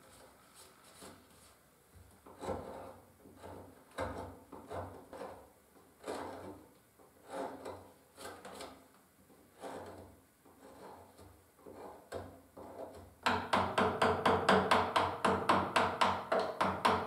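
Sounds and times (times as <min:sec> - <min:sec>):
chisel scraping through wood: 0:02.2 - 0:06.6, 0:07.2 - 0:08.8, 0:09.5 - 0:13.1.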